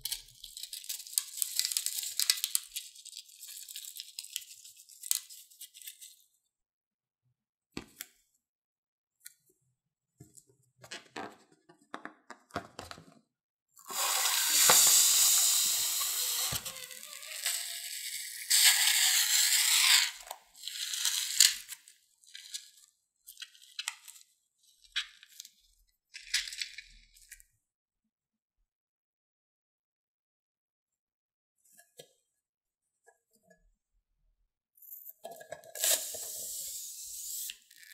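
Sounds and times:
slime squeezed through balloon neck: 13.8s - 20.0s.

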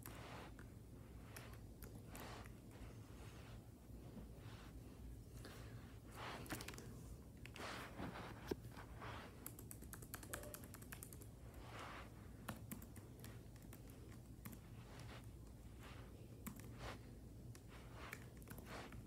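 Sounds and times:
laptop keyboard typing: 6.4s - 6.8s, 9.4s - 11.3s, 12.4s - 15.1s, 16.4s - 16.7s.

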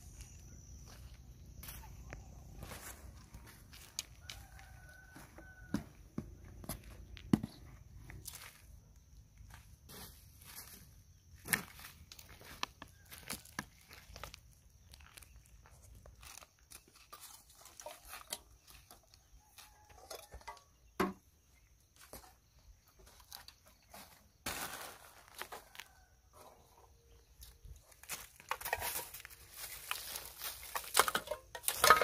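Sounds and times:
footsteps: 0.1s - 8.7s
stick rustling through plastic debris: 28.4s - 32.0s.

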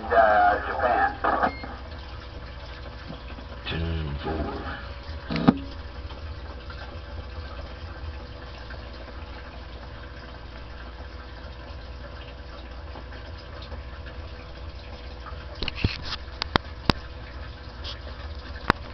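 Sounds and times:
radio static hiss: 0.0s - 1.8s, 3.7s - 5.5s
radio transmission burst: 0.0s - 1.8s.

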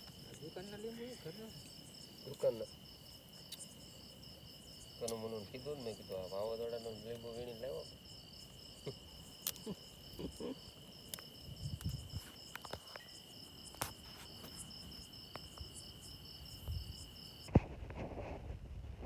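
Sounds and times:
pulsing insect chirp: 0.0s - 17.8s
insects trilling: 0.0s - 18.2s.

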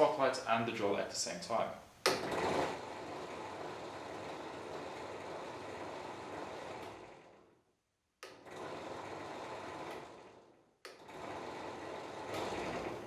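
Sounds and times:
drill press motor running: 2.1s - 7.6s, 8.2s - 13.0s.

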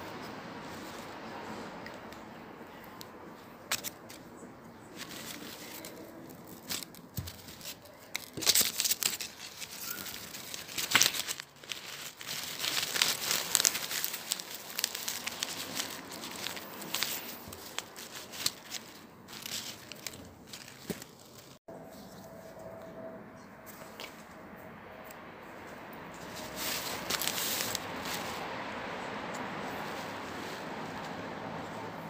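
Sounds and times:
packaging crinkling and tearing: 4.9s - 21.6s, 26.2s - 28.6s.

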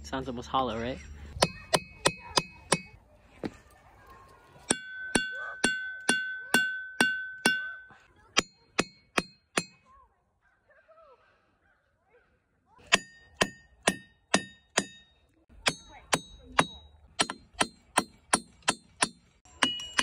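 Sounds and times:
hammer striking ringing rocks: 1.3s - 3.0s, 4.7s - 9.9s, 12.8s - 20.0s.

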